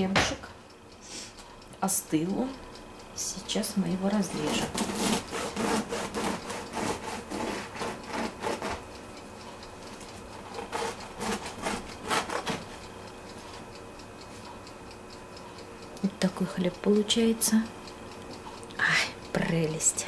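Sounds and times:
bread knife sawing through crust: 0:04.2 - 0:08.9, 0:10.5 - 0:12.7.

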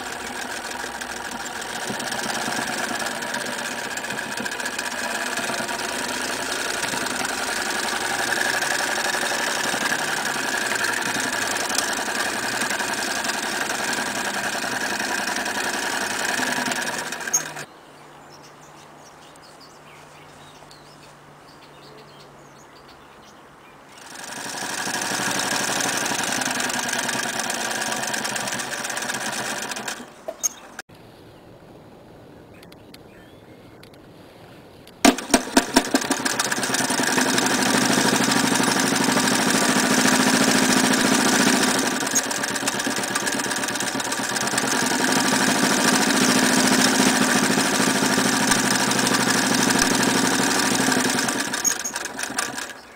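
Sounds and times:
sewing machine clicks: 0:00.0 - 0:17.7, 0:24.0 - 0:30.6, 0:35.0 - 0:52.9
sewing machine running: 0:00.0 - 0:17.7, 0:24.0 - 0:30.2, 0:35.1 - 0:52.9.

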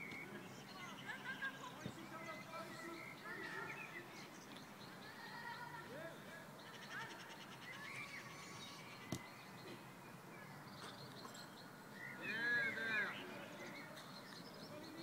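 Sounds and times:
birds chirping: 0:00.0 - 0:15.0
distant women shouting: 0:05.0 - 0:06.2.

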